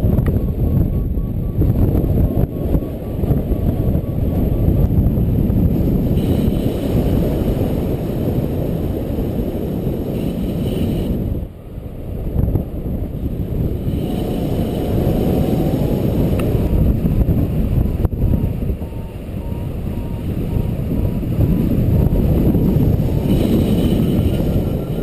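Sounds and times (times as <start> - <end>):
wind buffeting microphone: 0.0 - 25.0
faint repeating beep: 0.6 - 4.9, 18.2 - 20.7.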